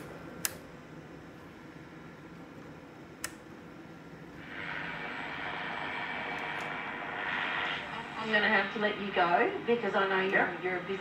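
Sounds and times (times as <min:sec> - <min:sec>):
radio static hiss: 0:04.3 - 0:11.0.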